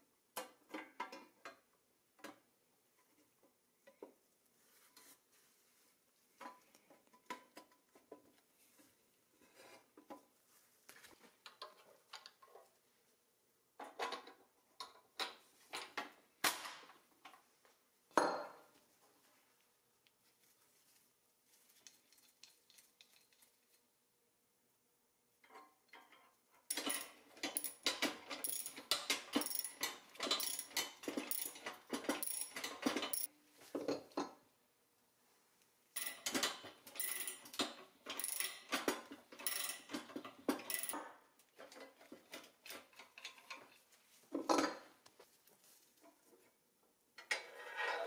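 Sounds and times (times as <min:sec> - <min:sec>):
ratchet wrench clicking: 0:28.4 - 0:28.8, 0:29.4 - 0:31.6, 0:32.2 - 0:33.3, 0:38.2 - 0:38.6, 0:39.4 - 0:39.9.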